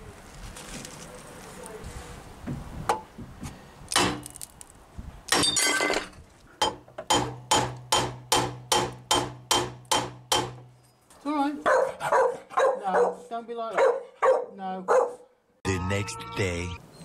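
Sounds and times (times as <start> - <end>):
hammer knocking on metal: 6.6 - 10.6.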